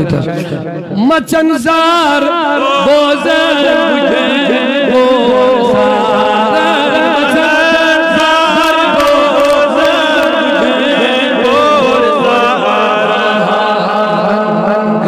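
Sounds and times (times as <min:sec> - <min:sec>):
man chanting devotional song: 0:00.0 - 0:15.0.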